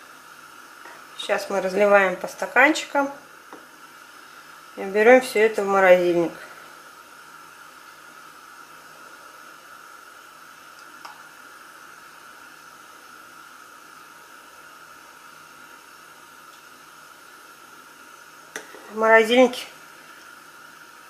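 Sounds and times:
background hiss: 0:00.0 - 0:21.0.

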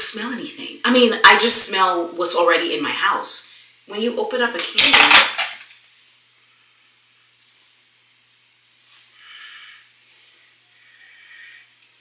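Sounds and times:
faint room hum: 0:00.0 - 0:12.0.

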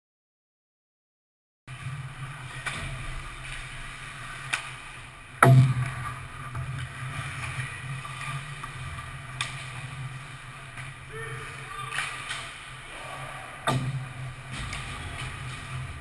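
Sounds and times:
puck striking metal goalpost: 0:05.4 - 0:05.8, 0:13.7 - 0:14.8.

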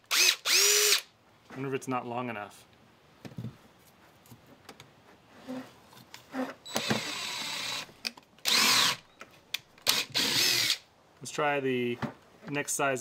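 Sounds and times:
cordless driver whirring: 0:00.1 - 0:01.1, 0:06.7 - 0:09.0, 0:09.8 - 0:10.8.

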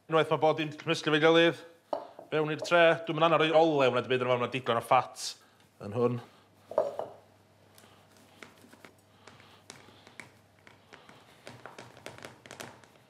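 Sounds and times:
hands patting meat in tray: 0:08.3 - 0:13.0.

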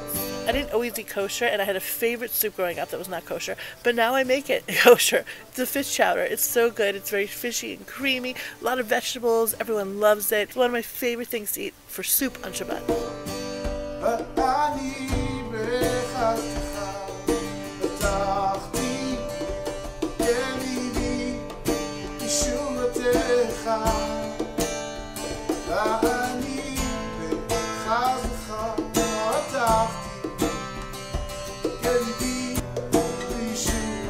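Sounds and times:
person singing: 0:00.0 - 0:01.8, 0:04.7 - 0:08.8, 0:14.0 - 0:19.6, 0:20.2 - 0:24.7, 0:25.6 - 0:30.6, 0:31.8 - 0:34.0
song with acoustic guitar: 0:00.0 - 0:34.0.

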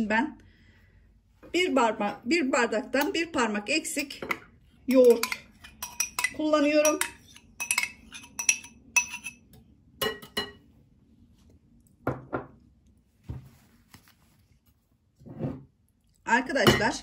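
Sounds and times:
whisk clinking against glass bowl: 0:04.9 - 0:10.6.

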